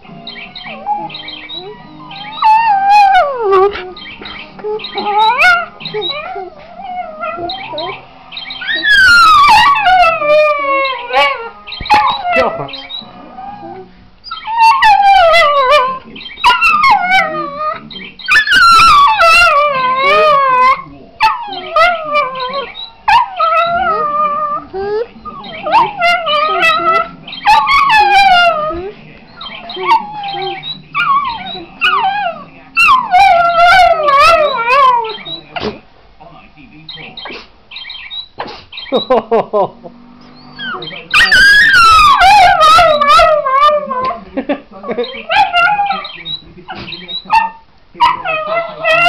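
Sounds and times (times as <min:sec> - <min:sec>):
dog howling: 0:00.7 - 0:08.0, 0:08.6 - 0:35.4, 0:40.2 - 0:44.2, 0:44.9 - 0:46.3, 0:47.2 - 0:49.0.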